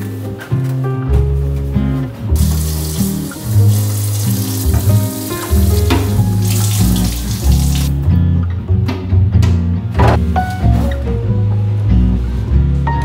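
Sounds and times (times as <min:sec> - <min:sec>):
background music: 0:00.0 - 0:13.0
tap water splashing: 0:02.4 - 0:07.9.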